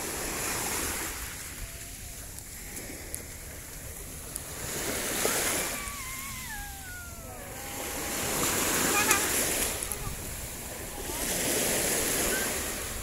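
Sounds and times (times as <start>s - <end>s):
small waves washing on sandy beach: 0.0s - 13.0s
thin downward sliding tone: 5.2s - 10.2s.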